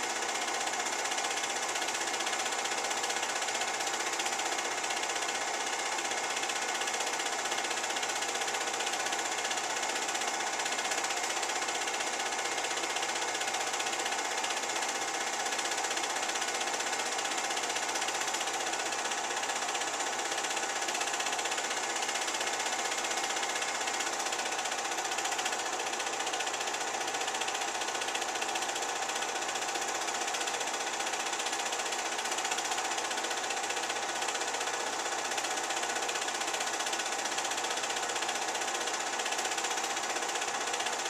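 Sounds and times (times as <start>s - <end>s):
film projector whirring: 0.0s - 41.0s.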